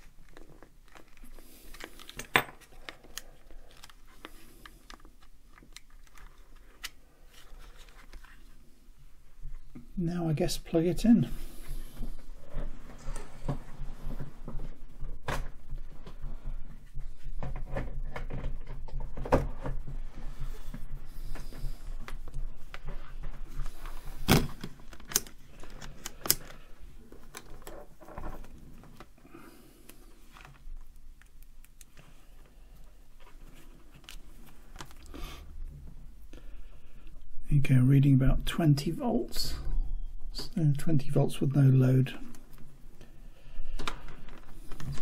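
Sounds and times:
rustling: 0:00.0 - 0:09.7.

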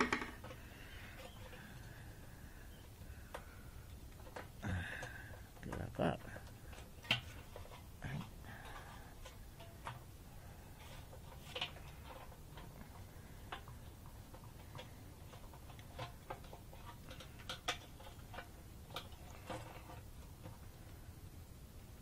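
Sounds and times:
clicks and knocks of parts handling: 0:03.3 - 0:10.1.

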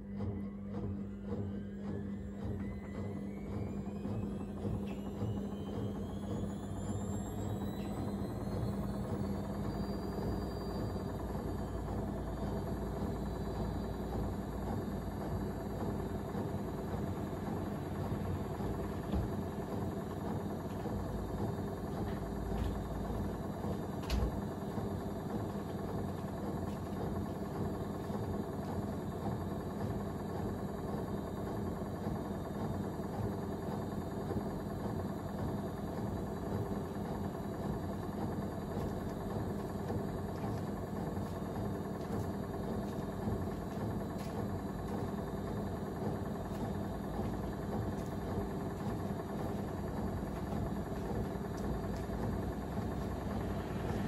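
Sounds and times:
washing machine spinning: 0:00.0 - 0:54.0
washing machine knocks: 0:11.1 - 0:27.6, 0:37.7 - 0:54.0.

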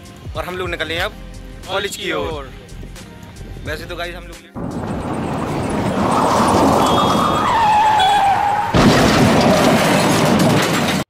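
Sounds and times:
busy road traffic: 0:00.0 - 0:03.9, 0:04.5 - 0:11.0
motorcycles passing: 0:04.6 - 0:08.7.

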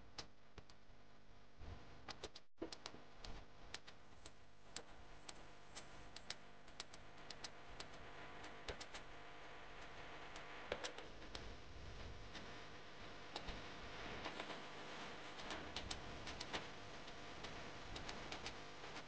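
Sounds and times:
faint steady hum: 0:00.0 - 0:19.0
small clicks and taps: 0:02.1 - 0:09.1, 0:09.8 - 0:11.5, 0:13.3 - 0:13.6, 0:15.4 - 0:19.0.

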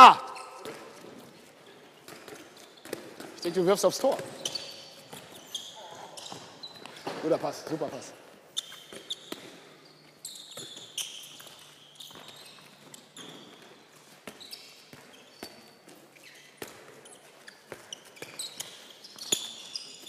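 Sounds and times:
shoes squeaking on hall floor: 0:00.0 - 0:20.0
handballs bouncing: 0:00.3 - 0:05.6, 0:08.8 - 0:20.0.

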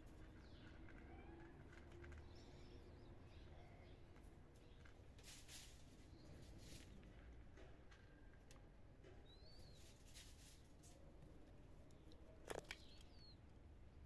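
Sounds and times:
cats crunching dry kibble: 0:00.0 - 0:05.9, 0:10.2 - 0:13.1
small bird chirping: 0:09.2 - 0:10.7, 0:11.9 - 0:13.5
small clicks: 0:11.8 - 0:13.4.

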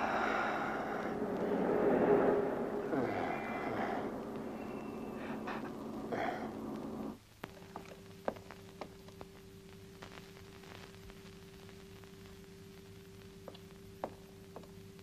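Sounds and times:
muffled rushing noise: 0:00.0 - 0:07.2
low hum: 0:00.0 - 0:15.0.

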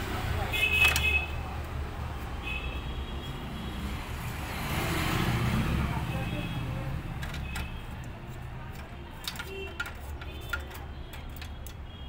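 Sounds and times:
screwdriver metallic clicks: 0:07.2 - 0:11.9.

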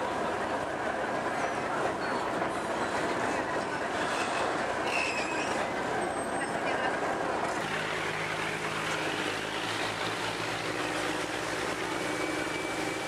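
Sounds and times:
wind: 0:00.0 - 0:13.0
boat engine humming: 0:07.0 - 0:13.0
churning water: 0:07.4 - 0:13.0.

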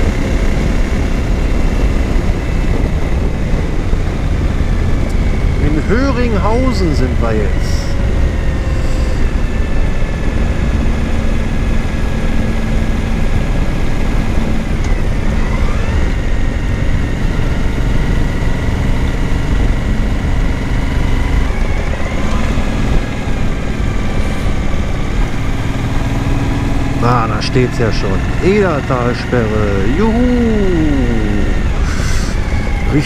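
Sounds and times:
wind rush on microphone: 0:00.0 - 0:06.7, 0:07.4 - 0:27.0
motorcycle engine running: 0:00.0 - 0:33.0.

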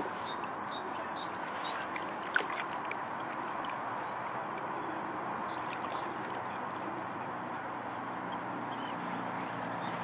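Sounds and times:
water sloshing: 0:00.0 - 0:07.2.

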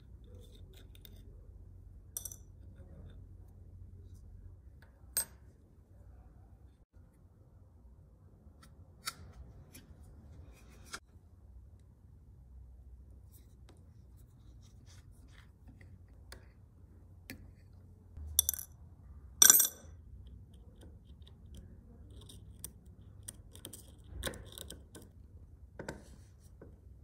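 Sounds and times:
metal clinking into ceramic bowl: 0:02.2 - 0:02.6.

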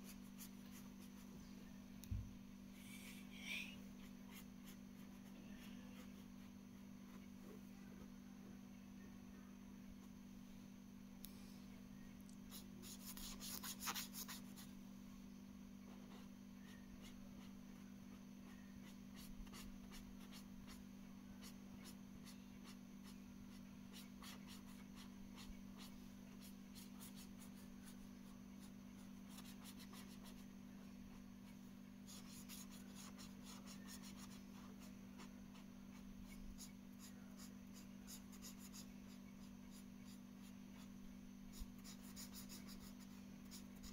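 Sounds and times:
marker scratching on paper: 0:12.5 - 0:14.7, 0:18.4 - 0:20.8, 0:21.4 - 0:28.0, 0:28.6 - 0:30.4, 0:31.1 - 0:40.2, 0:41.5 - 0:43.9.

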